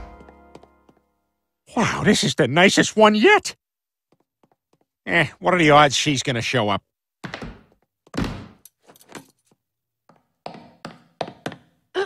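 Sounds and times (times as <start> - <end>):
high-heel footsteps on tile: 0.0 - 1.1, 4.1 - 4.9, 10.0 - 11.8.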